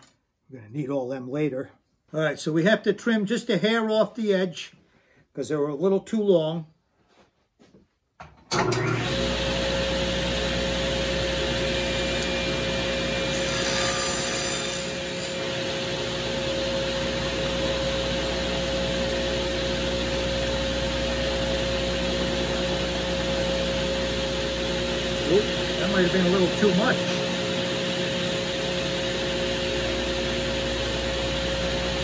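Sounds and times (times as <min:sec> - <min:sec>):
table saw running: 0:09.0 - 0:18.8.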